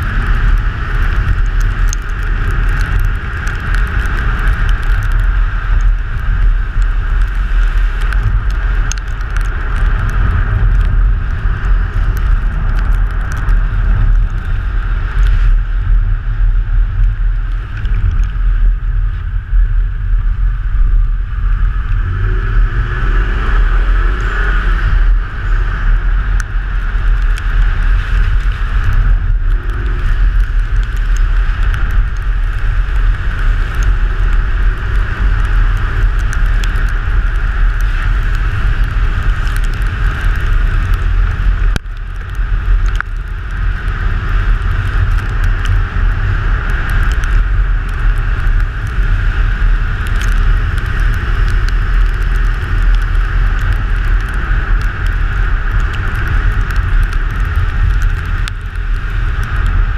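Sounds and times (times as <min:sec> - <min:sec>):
rally car engine at speed: 0:00.0 - 0:59.9
wind rumble on microphone: 0:00.0 - 0:59.9.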